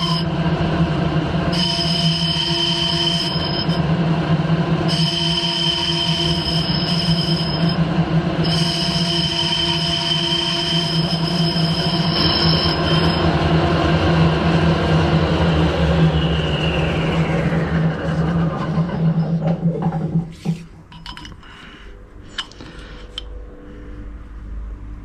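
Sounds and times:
metal lathe cutting: 8.4s - 13.4s.

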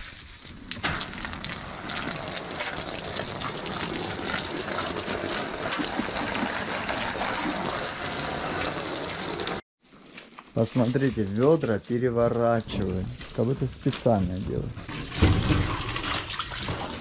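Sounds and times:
water splashing onto fabric: 0.0s - 9.6s.

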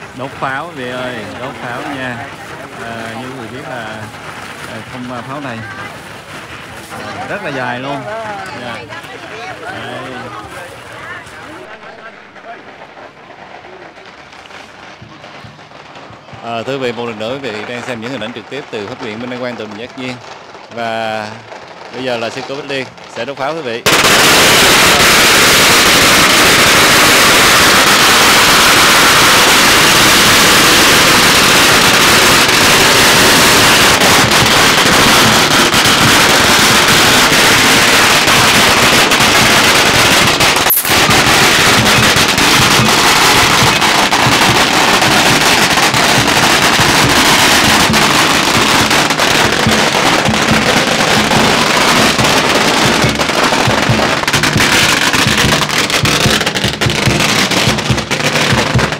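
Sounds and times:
firecrackers crackling: 0.0s - 58.9s.

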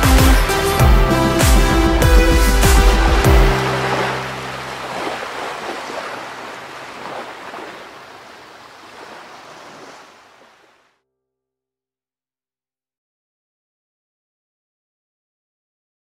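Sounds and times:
ocean waves rushing: 1.4s - 10.8s.

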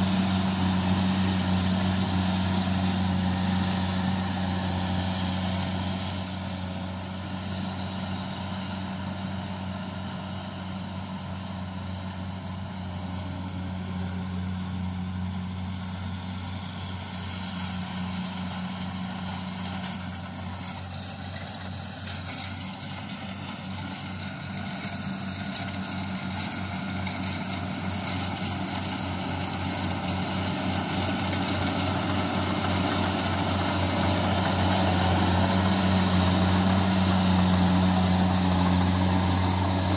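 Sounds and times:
combine harvester diesel engine: 0.0s - 39.9s.

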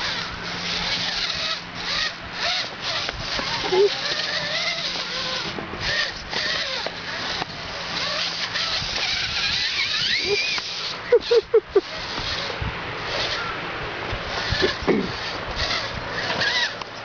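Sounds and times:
short loud squeaks: 0.0s - 10.9s, 14.4s - 16.8s
electric motor and gearbox whining: 0.0s - 17.0s.

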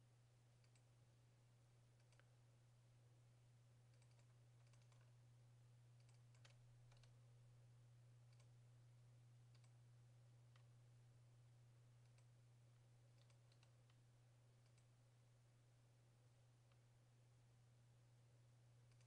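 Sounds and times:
steady low hum: 0.0s - 19.0s
computer mouse clicks: 0.6s - 0.9s, 2.0s - 2.3s, 3.9s - 5.1s, 6.0s - 7.2s, 8.3s - 8.5s, 9.5s - 9.8s, 12.0s - 12.3s, 13.1s - 14.0s, 14.6s - 14.9s.

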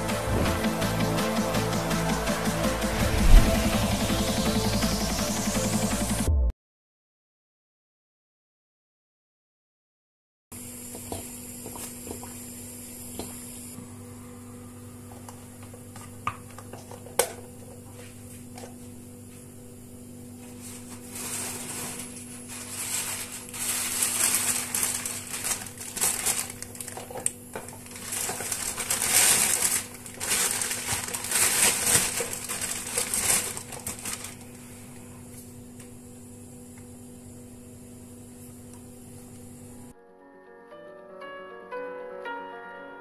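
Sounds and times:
low hum: 0.0s - 6.5s
plastic bag rustling: 20.4s - 34.7s.

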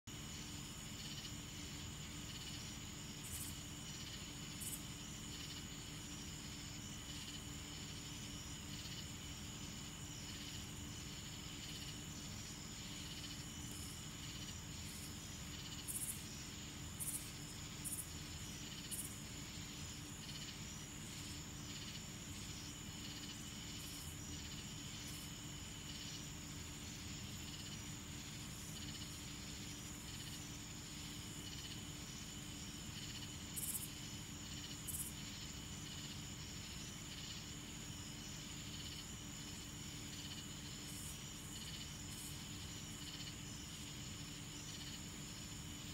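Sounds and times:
insects trilling and chirping: 0.0s - 45.9s.

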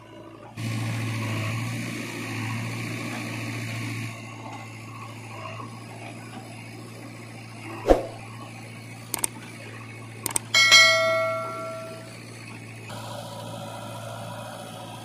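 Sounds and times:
diesel engine running: 0.0s - 15.0s
high whine: 10.6s - 12.1s.

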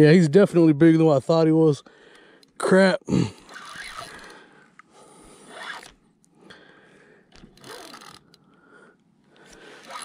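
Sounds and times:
fishing reel zipping: 3.4s - 4.4s, 5.5s - 6.0s, 7.3s - 8.4s, 9.6s - 10.0s.

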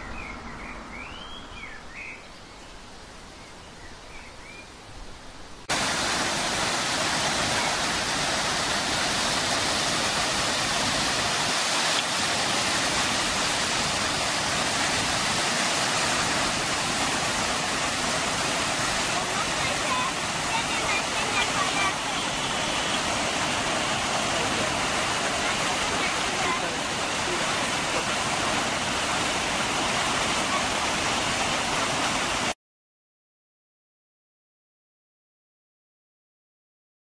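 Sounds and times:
waterfall rushing over rocks: 5.7s - 32.6s.

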